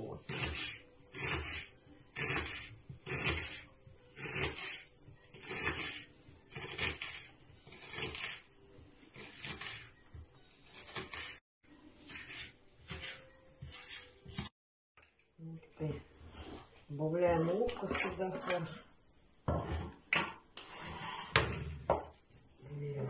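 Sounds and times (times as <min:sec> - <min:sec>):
knife slicing onion on wooden board: 0:00.0 - 0:09.9, 0:10.5 - 0:14.5.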